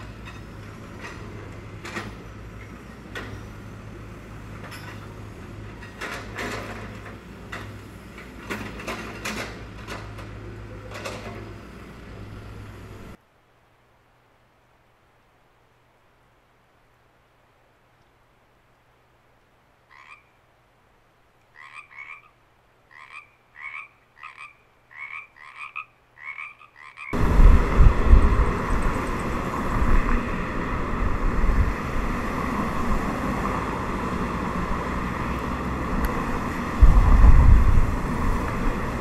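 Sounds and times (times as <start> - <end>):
road traffic noise: 0.0 - 13.3, 21.4 - 39.0
frogs croaking: 19.8 - 20.4, 21.5 - 27.2.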